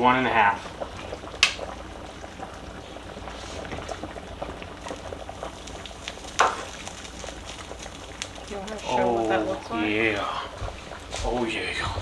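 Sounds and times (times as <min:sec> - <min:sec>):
cream bubbling in a skillet: 0:00.0 - 0:12.0.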